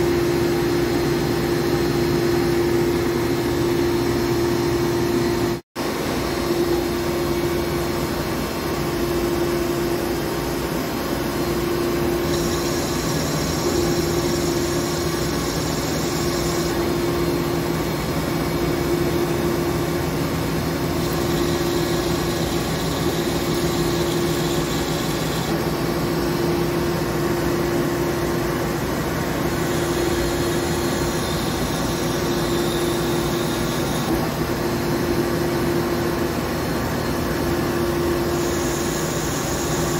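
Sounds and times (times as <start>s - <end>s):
lathe humming: 11.3s - 34.2s, 37.9s - 39.9s.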